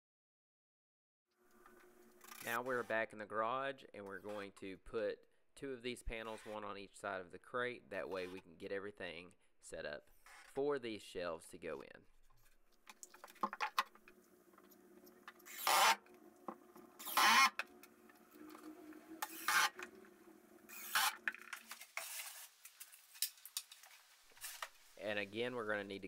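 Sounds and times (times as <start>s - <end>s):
wood scraping on wood: 14.6s - 24.8s.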